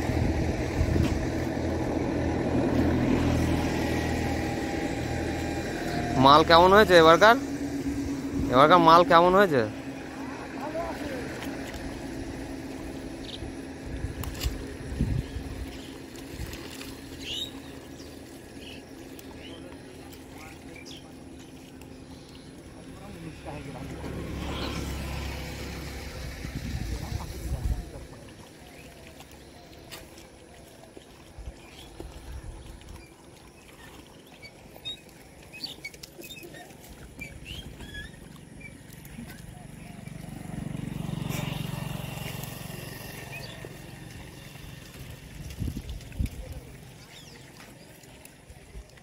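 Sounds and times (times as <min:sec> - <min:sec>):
low rumble: 0:00.0 - 0:28.1
light water splashing: 0:00.0 - 0:49.0
low engine hum: 0:00.0 - 0:49.0
small birds chirping: 0:17.0 - 0:23.4, 0:31.4 - 0:40.4, 0:41.2 - 0:44.9, 0:46.4 - 0:48.3
bird chirps: 0:17.2 - 0:19.6, 0:37.2 - 0:40.1.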